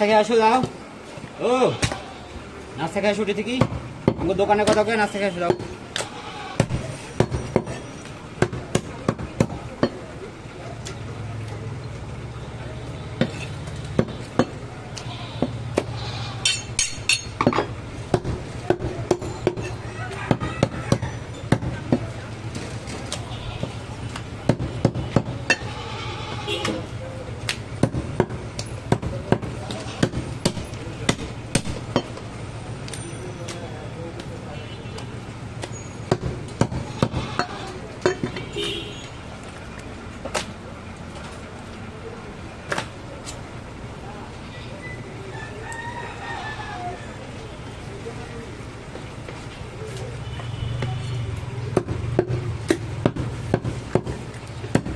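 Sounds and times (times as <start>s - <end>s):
cleaver striking wooden block: 27.5s - 32.2s.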